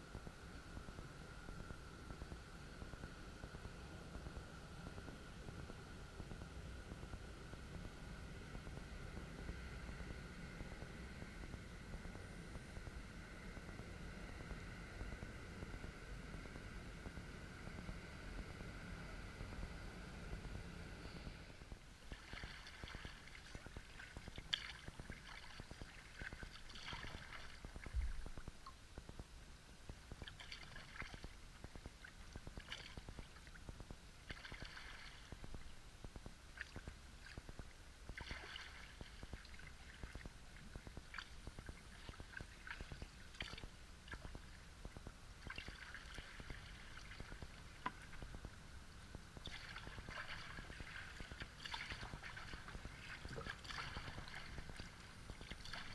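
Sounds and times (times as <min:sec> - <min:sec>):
kayak paddle splashing: 0:22.1 - 0:28.2, 0:34.3 - 0:35.3, 0:38.2 - 0:40.2, 0:49.4 - 0:55.9.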